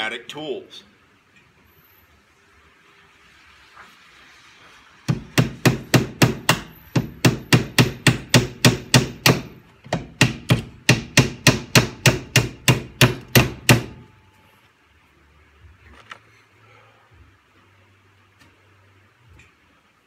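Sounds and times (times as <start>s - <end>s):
hammer driving nails into wood: 5.1s - 14.0s.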